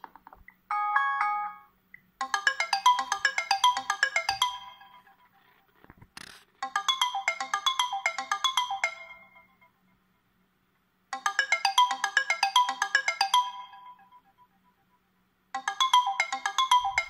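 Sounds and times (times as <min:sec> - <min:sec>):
phone ringtone chiming notes: 0:00.7 - 0:05.3, 0:06.6 - 0:09.7, 0:11.1 - 0:14.8, 0:15.6 - 0:17.0.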